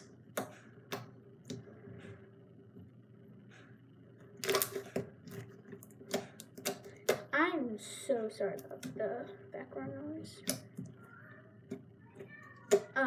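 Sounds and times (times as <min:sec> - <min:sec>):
faint steady hum: 0:00.0 - 0:13.0
slime squishing with wet pops: 0:04.4 - 0:07.3.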